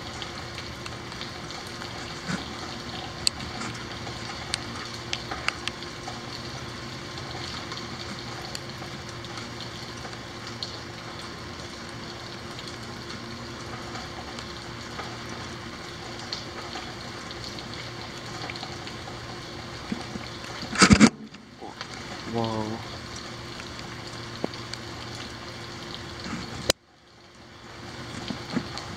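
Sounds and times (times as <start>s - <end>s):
rain falling: 0.0s - 28.9s.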